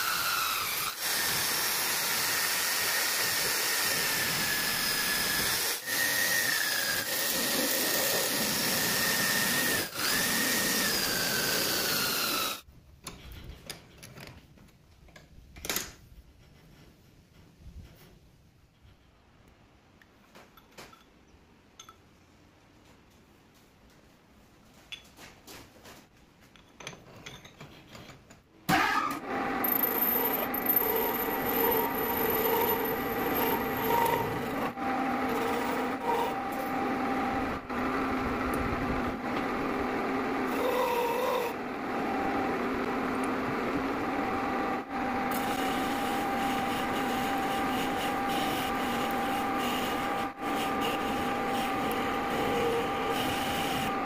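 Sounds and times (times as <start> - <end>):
metal lathe running: 29.6 - 38.5, 39.4 - 54.0
cutting tool scraping metal: 45.3 - 54.0.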